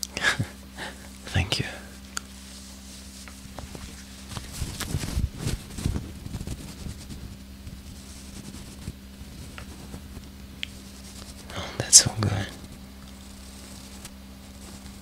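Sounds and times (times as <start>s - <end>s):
steady low hum: 0.0s - 15.0s
handling noises near microphone: 2.4s - 11.5s.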